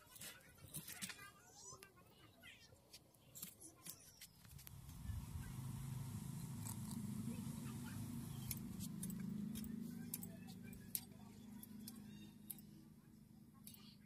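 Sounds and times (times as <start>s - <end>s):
pot of water heating rumble: 4.6s - 9.8s.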